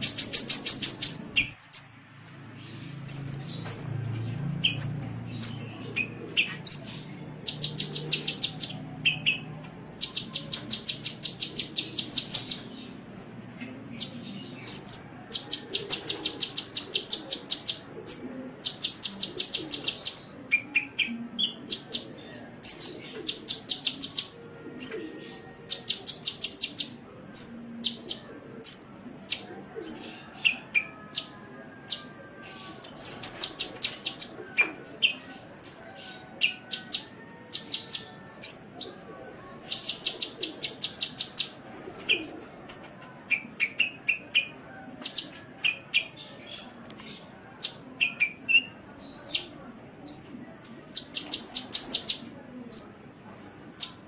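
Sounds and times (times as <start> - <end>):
sunbird chirps and trills: 0.0 - 12.8.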